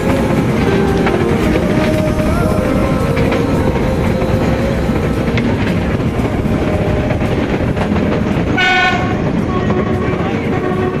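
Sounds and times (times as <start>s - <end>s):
train wheels rattling on rails: 0.0s - 11.0s
train horn toot: 8.5s - 11.0s.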